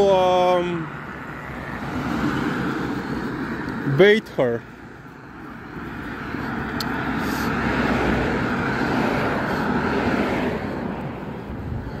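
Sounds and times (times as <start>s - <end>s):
car driving past: 6.5s - 11.2s.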